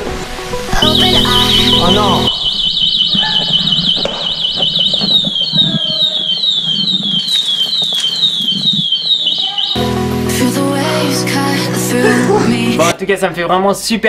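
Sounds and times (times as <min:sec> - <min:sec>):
electronic siren alarm: 0:00.8 - 0:10.0.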